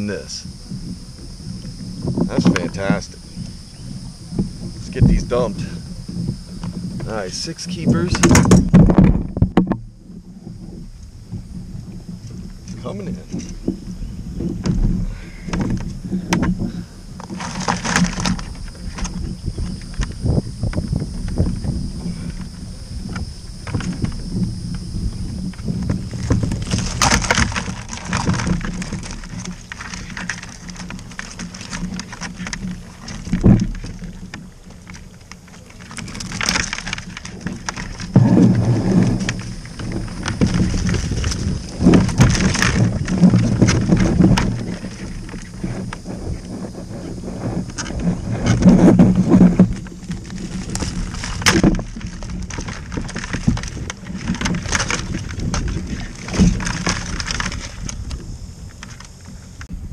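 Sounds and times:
knocks and scrapes on kayak: 0.0s - 59.9s
wind on microphone: 0.0s - 59.9s
knocks against kayak hull: 7.8s - 9.8s, 13.4s - 24.5s, 36.1s - 46.0s
heavy thump: 13.3s - 19.2s, 37.7s - 44.8s.

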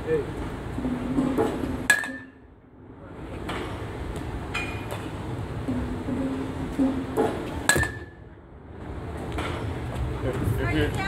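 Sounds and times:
metal bat hitting ball: 0.8s - 2.4s, 5.7s - 8.2s.

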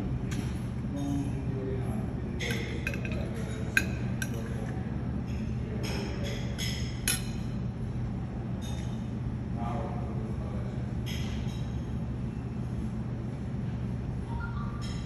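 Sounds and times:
steady low hum: 0.0s - 15.0s
dishes and cutlery clinking: 2.4s - 7.6s.

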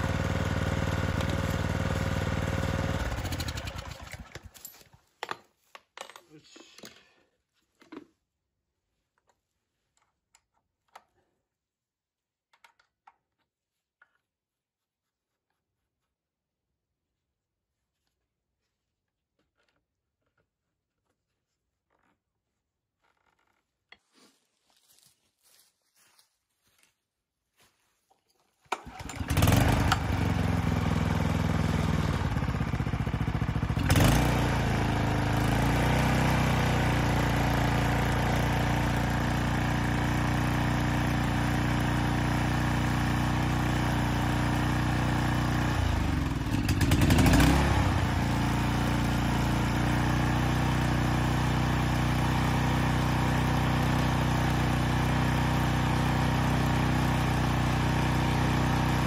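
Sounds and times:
small mower engine running: 0.0s - 4.6s, 28.7s - 59.0s
recoil start pull: 0.5s - 4.9s, 28.6s - 42.1s.

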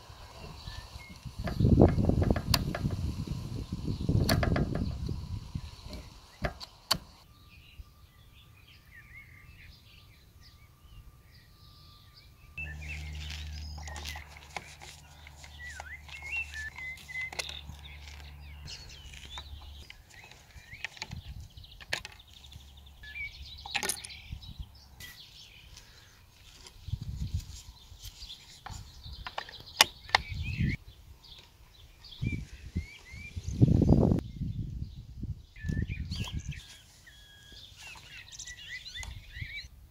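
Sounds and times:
small birds chirping: 0.0s - 39.8s.

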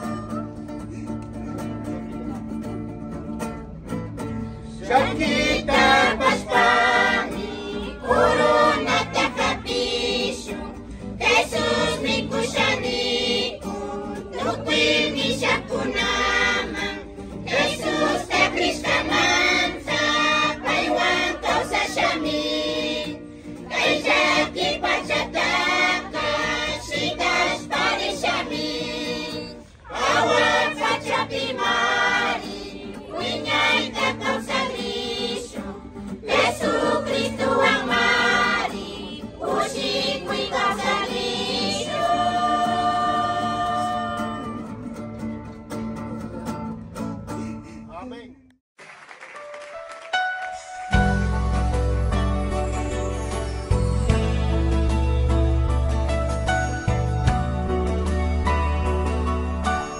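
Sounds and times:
group singing a hymn: 4.7s - 44.9s.

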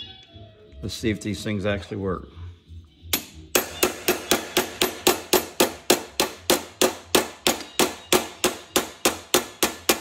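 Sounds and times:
hammer striking sheet metal: 3.2s - 10.0s.

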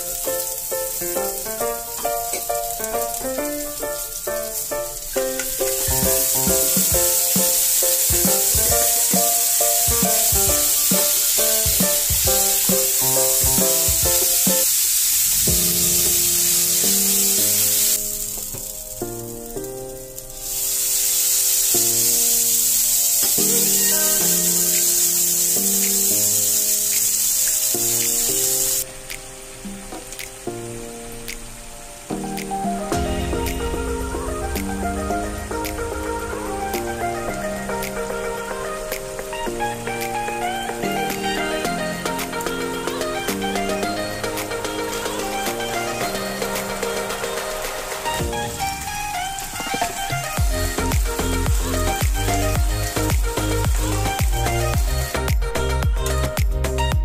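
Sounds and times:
rice sizzling in oil: 0.0s - 41.6s
background music: 0.0s - 57.0s.

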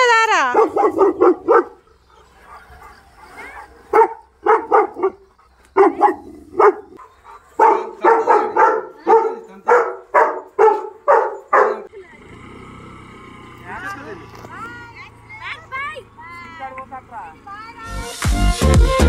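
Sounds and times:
dog barking: 0.5s - 11.9s.

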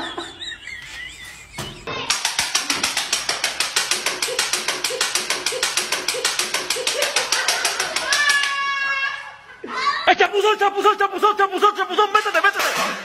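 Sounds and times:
rapid even clicking: 2.1s - 8.5s.

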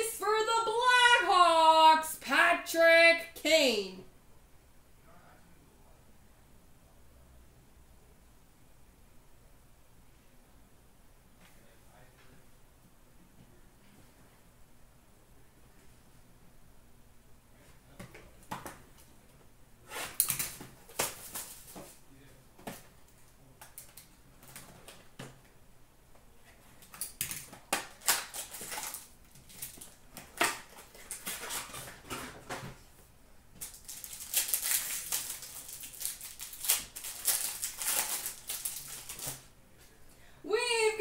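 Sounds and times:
card wrappers crackling and tearing: 20.2s - 21.9s, 26.8s - 32.3s, 33.6s - 39.5s.

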